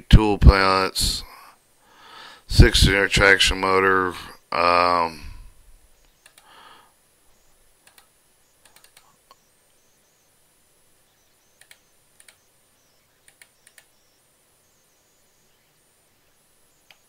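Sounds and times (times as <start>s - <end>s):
computer mouse clicks: 6.0s - 6.5s, 7.8s - 9.4s, 11.6s - 12.5s, 13.2s - 14.0s.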